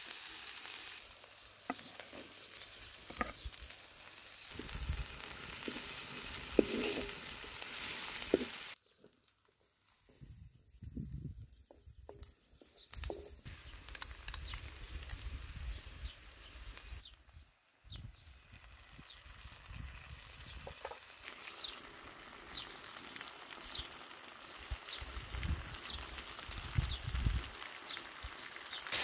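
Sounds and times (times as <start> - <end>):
food sizzling in oil: 0.0 - 8.8, 12.8 - 17.1, 18.3 - 29.0
wooden spoon scraping a pan: 1.6 - 3.5, 4.5 - 8.8.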